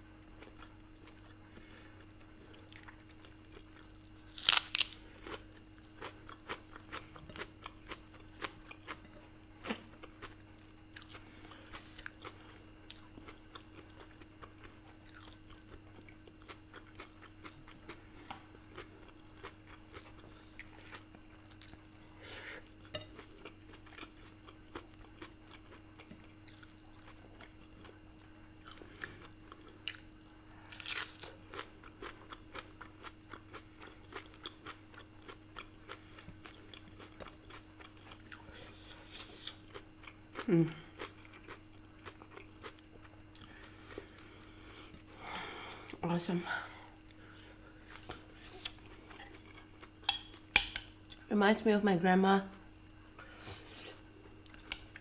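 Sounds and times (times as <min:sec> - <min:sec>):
person chewing: 0:00.4 - 0:46.0, 0:46.8 - 0:51.2, 0:52.9 - 0:55.0.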